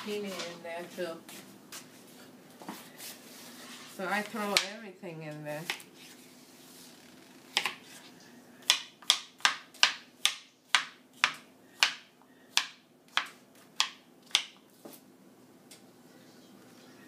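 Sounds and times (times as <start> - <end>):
knife chopping on cutting board: 7.5 - 8.0, 8.6 - 15.0.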